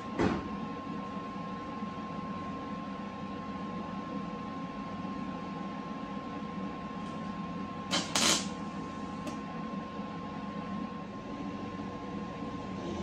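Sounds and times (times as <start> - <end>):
shop hum with steady tone: 0.0 - 13.0
welding crackling bursts: 7.9 - 8.5.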